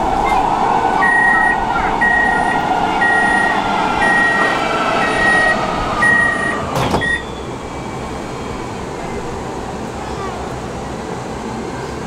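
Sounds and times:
high warning beeps: 1.0s - 7.4s
train doors shutting knock: 4.0s - 7.4s.

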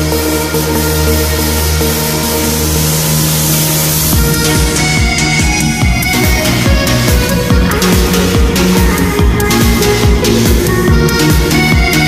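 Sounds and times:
electronic dance music: 0.0s - 12.0s
deep kick drum: 4.1s - 12.0s.

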